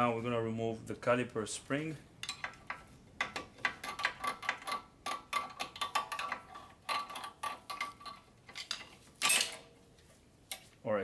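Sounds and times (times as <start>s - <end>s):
metal spring clicks and scrapes: 2.2s - 9.7s.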